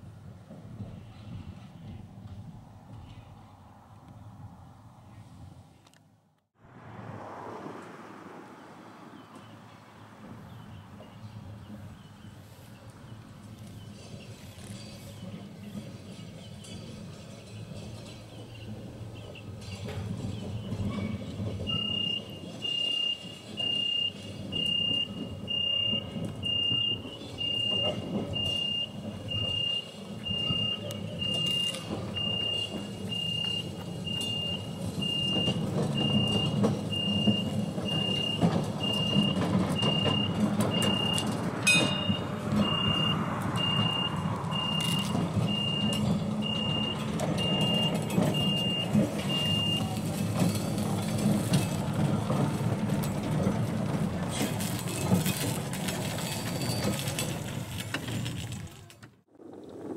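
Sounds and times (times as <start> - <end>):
tram rumbling over track: 0.0 - 5.9, 6.6 - 59.9
level crossing signal beeping: 21.6 - 50.2.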